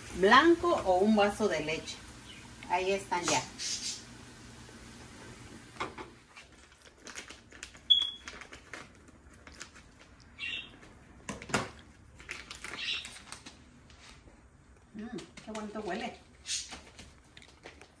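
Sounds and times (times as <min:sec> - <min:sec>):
plastic pouch crinkling: 0:06.4 - 0:14.2.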